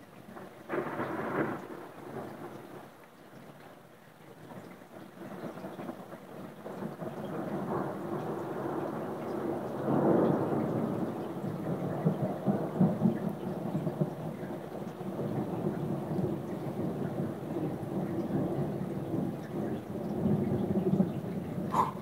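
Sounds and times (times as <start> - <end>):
thunder rumbling: 6.7 - 22.0.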